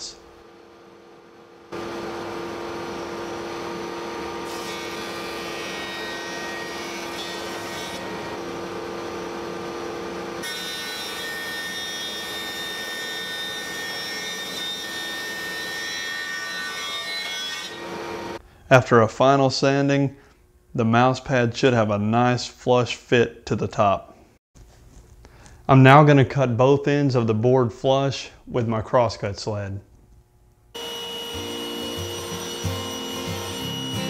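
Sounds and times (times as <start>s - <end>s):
thickness planer cutting wood: 1.8s - 8.9s, 10.0s - 18.4s, 30.8s - 34.0s.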